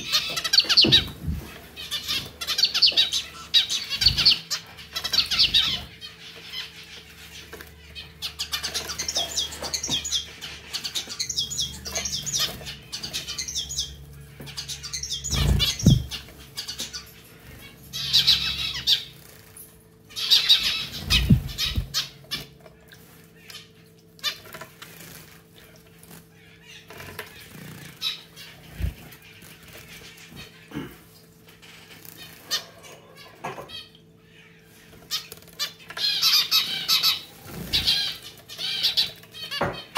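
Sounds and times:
finches chirping: 0.0 - 22.6, 26.4 - 30.8, 32.2 - 39.9
wing flutters: 15.2 - 16.4, 18.3 - 23.3.

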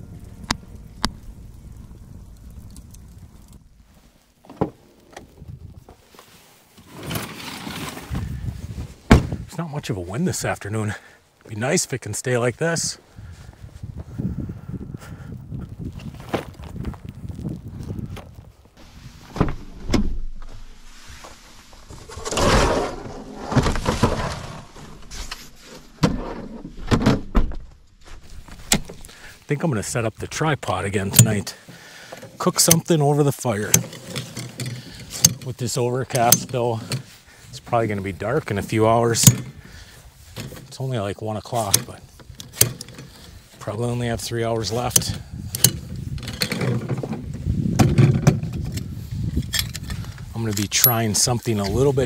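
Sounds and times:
campfire pop: 0.0 - 5.9
rustling: 0.0 - 9.5, 15.8 - 52.0
campfire crackling: 0.0 - 19.7, 27.8 - 46.2
table scraping: 22.0 - 25.5
gear rustling and clattering: 33.6 - 39.6, 41.6 - 43.6, 44.2 - 51.9.

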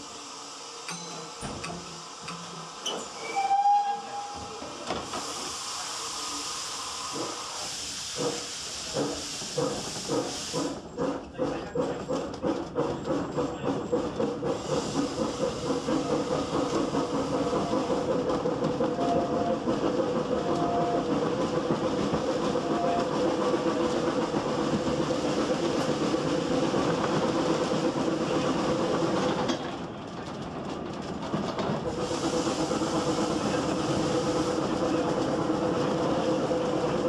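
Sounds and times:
steam carriage rolling: 0.0 - 37.0
wheels clicking over rail joints: 29.0 - 31.9.

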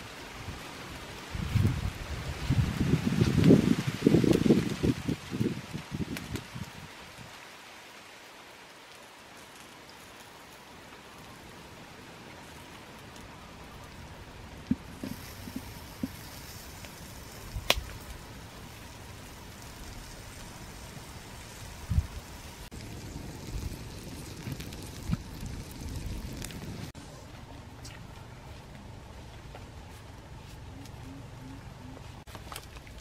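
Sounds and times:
wood fire hissing under pot: 9.4 - 27.1.

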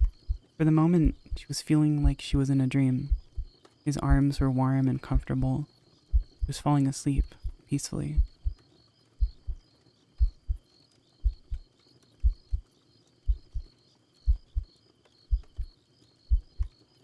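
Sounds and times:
slow heartbeat thumps: 0.0 - 2.4, 3.0 - 4.4, 6.1 - 6.6, 7.2 - 8.6, 9.2 - 9.6, 10.2 - 12.7, 13.3 - 14.7, 15.3 - 15.7, 16.3 - 16.7
crickets chirping faintly: 0.0 - 17.0.

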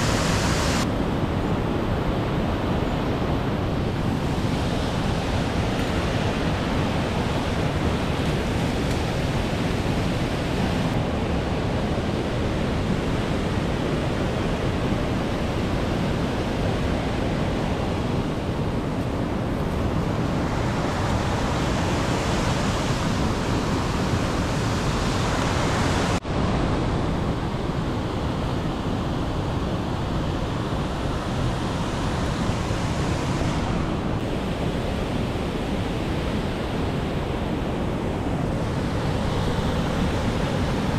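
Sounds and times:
waterfall rushing: 0.0 - 0.9.

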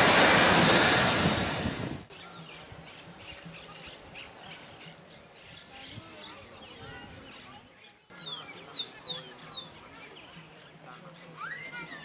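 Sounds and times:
steam locomotive noise: 0.0 - 2.1
birds chirping: 2.1 - 12.0.

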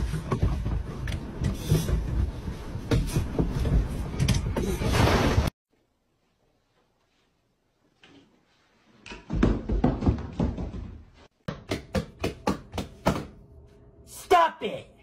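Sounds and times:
person falling onto hard floor: 9.1 - 11.0.

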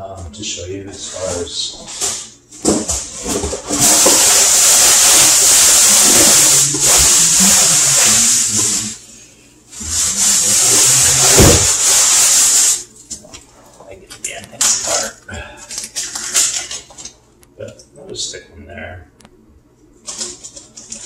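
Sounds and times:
cardboard and plastic packaging rustling: 1.0 - 8.3, 20.0 - 21.0.

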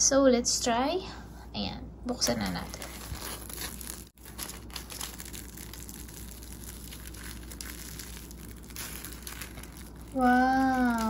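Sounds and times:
crispy crust crackling and crunching: 2.2 - 11.0.

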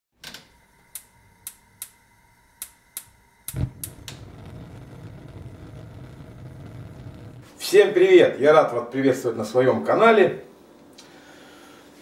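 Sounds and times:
steady rush of gas flame: 0.6 - 8.1
spark igniter clicking: 0.9 - 2.0, 2.6 - 7.5
gas igniting with a whoomp: 1.2 - 7.8.

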